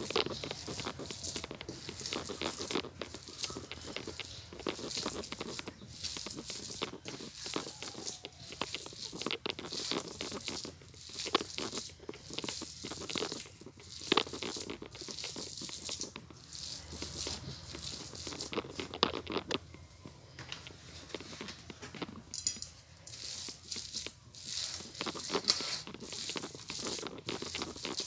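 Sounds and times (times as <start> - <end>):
fingers tapping plate: 0.0 - 19.8
wet squishing of kneaded meat: 0.0 - 22.0.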